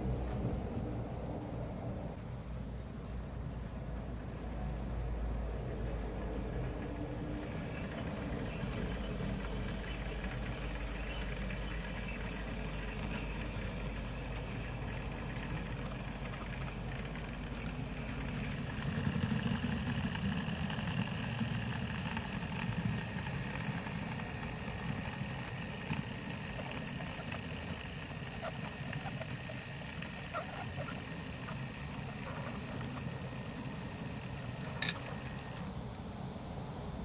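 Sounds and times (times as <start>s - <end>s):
model locomotive running: 3.6s - 37.0s
high whine: 5.2s - 37.0s.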